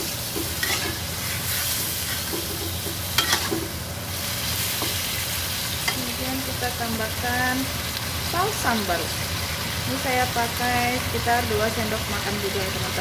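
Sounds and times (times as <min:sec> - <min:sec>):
prawns sizzling in a wok: 0:00.0 - 0:13.0
metal spatula scraping a pan: 0:00.4 - 0:03.6.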